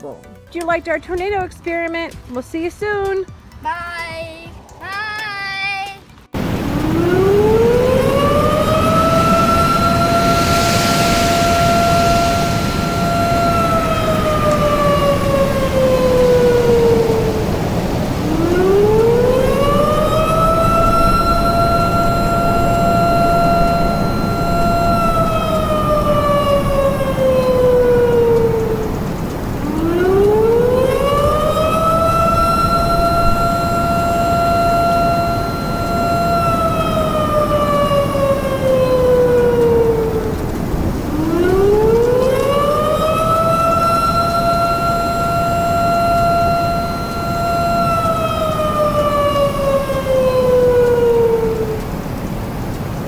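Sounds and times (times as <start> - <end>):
steady low rush: 0.0 - 53.0
warning siren wailing: 6.3 - 53.0.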